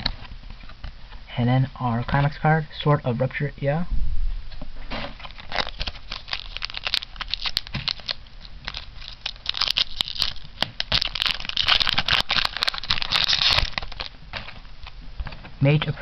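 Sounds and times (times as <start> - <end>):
foil wrapper crinkling and tearing: 5.2 - 15.0.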